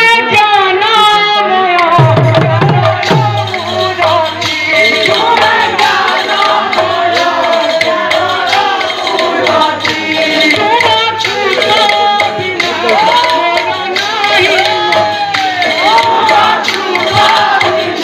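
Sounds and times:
man singing into a microphone: 0:00.0 - 0:18.0
deep drum tone: 0:02.0 - 0:04.2
barrel drums beaten fast: 0:02.0 - 0:18.0.

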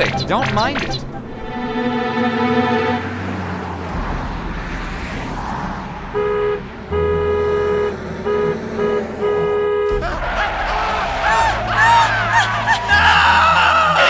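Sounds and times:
car horn honks: 0:06.1 - 0:10.0
cartoon engine rumble: 0:06.2 - 0:13.4.

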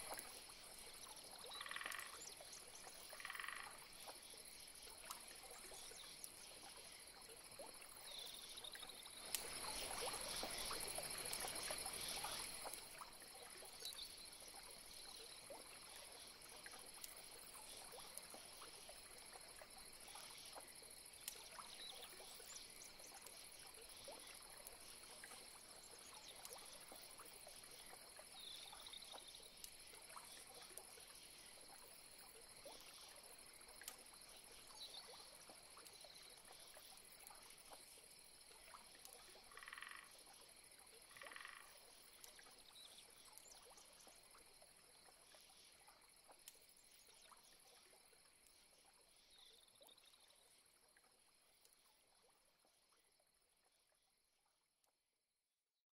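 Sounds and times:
frogs croaking: 0:00.9 - 0:21.1, 0:38.1 - 0:47.7.

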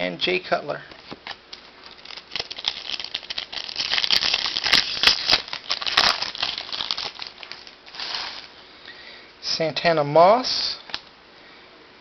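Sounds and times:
foil wrapper crinkling and tearing: 0:01.2 - 0:08.6.

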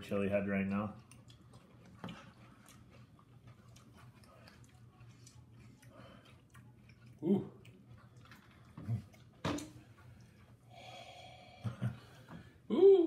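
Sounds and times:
low steady hum: 0:00.0 - 0:13.0
chewing crunchy cereal: 0:00.8 - 0:10.7.

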